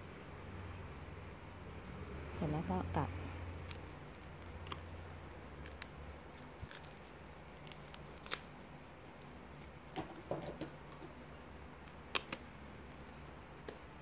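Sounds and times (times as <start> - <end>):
banana leaves clicking and crackling: 3.5 - 10.7, 11.9 - 13.8.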